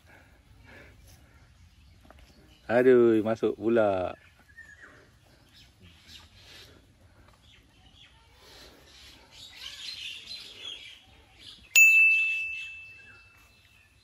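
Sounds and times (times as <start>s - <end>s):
faint bird chirps: 4.0s - 14.0s
loud bright ding: 11.8s - 13.2s.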